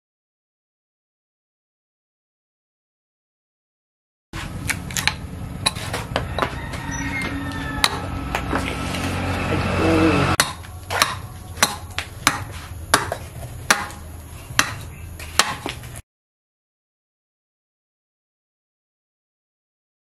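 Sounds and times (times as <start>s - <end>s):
hatchet chopping wood: 10.4s - 15.9s.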